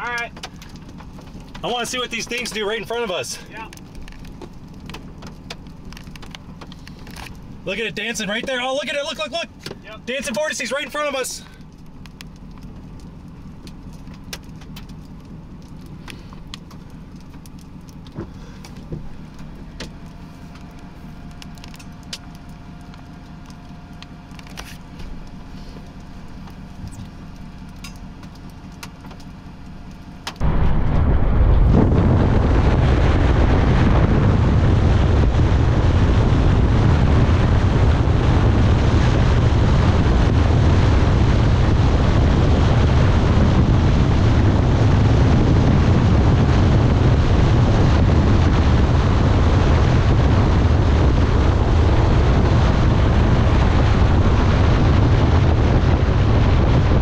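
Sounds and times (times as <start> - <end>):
strong wind buffeting microphone: 30.4 - 57.0.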